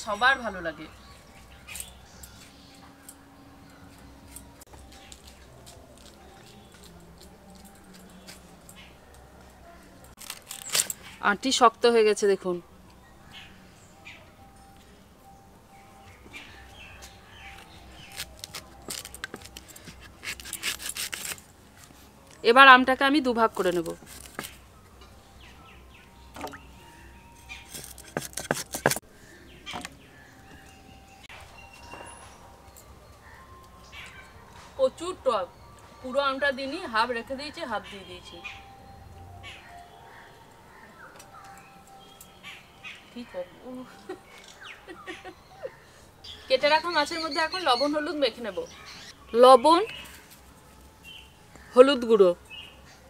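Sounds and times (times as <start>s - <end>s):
knife scraping and clicking: 18.1s - 21.4s, 27.4s - 29.0s.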